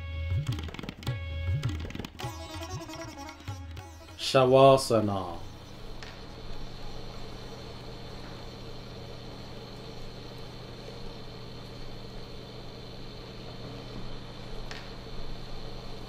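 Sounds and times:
low mechanical hum: 0.0s - 16.0s
faint high whine: 3.8s - 16.0s.

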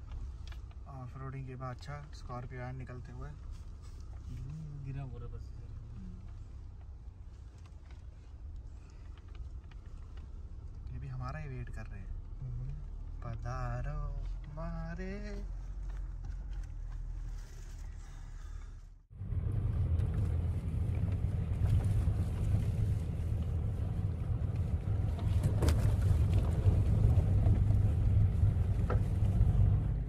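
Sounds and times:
car rumbling over gravel: 19.1s - 30.0s.

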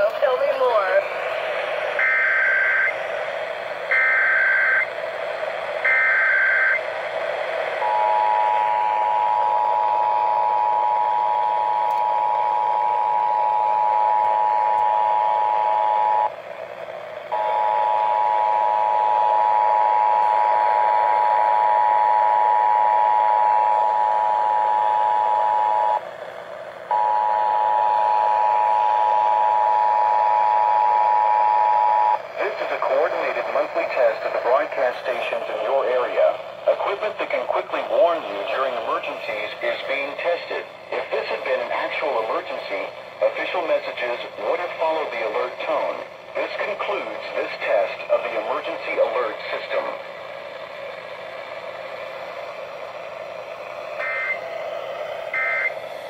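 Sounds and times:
two-tone alert signal: 54.0s - 54.4s, 55.4s - 55.7s.

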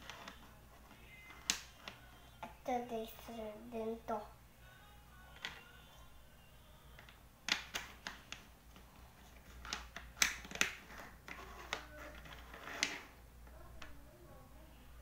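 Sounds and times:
plastic blocks clicking together: 9.6s - 13.0s.

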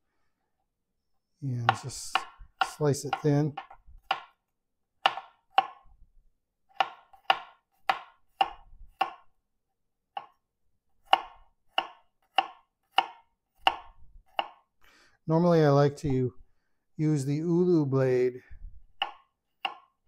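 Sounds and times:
knife chopping on cutting board: 1.6s - 4.4s, 5.0s - 5.9s, 6.7s - 9.3s, 10.1s - 10.4s, 11.0s - 14.7s, 19.0s - 20.0s.

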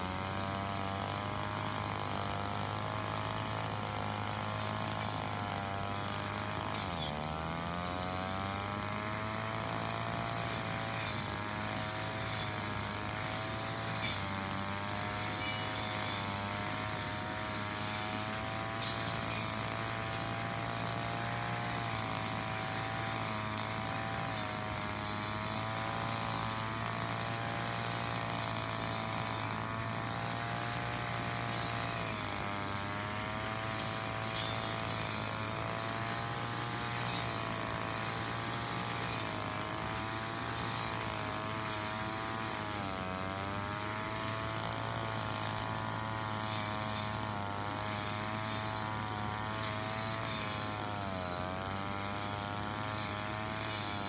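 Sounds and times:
brush cutter buzzing: 0.0s - 54.0s
sharp metallic clinks: 0.5s - 7.2s, 31.1s - 43.0s.

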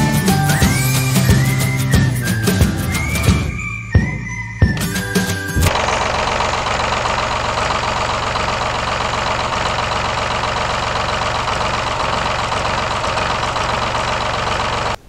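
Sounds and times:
engine running steadily: 4.8s - 15.0s.

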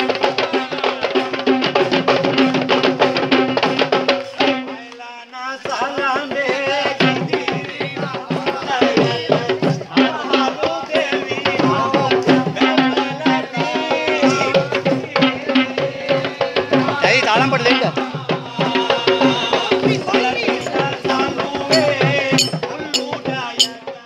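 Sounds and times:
fast hand drumming: 21.6s - 23.8s
wavering melody: 21.7s - 23.8s.

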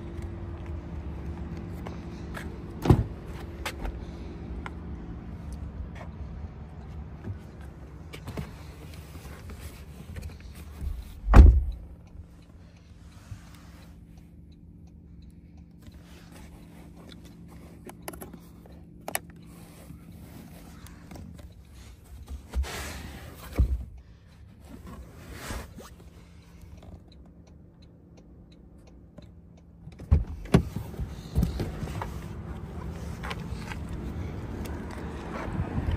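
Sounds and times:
heavy thump in car: 11.2s - 11.7s.

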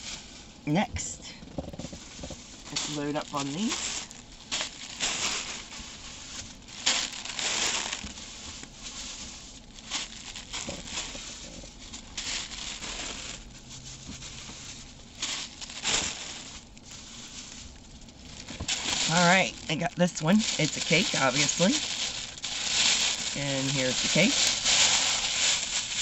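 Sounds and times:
plastic packaging crinkling: 0.0s - 26.0s.

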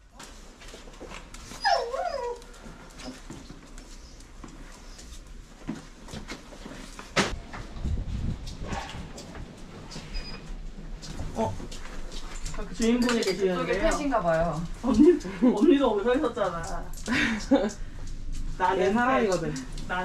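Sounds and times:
dog whining: 1.5s - 3.2s
rustling: 2.4s - 16.9s.

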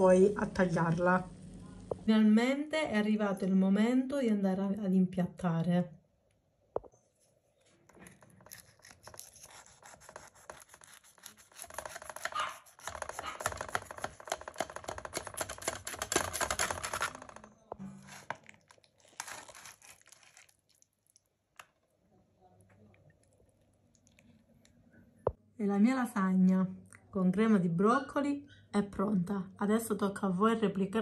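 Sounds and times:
utensil cutting crusty food: 8.0s - 17.4s, 18.0s - 20.8s
utensil scraping foil tray: 8.4s - 18.4s, 19.1s - 20.4s.

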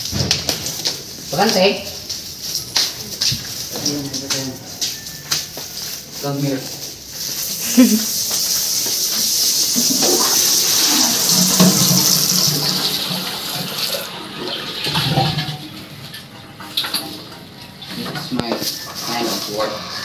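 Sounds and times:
water rushing: 8.8s - 15.9s.

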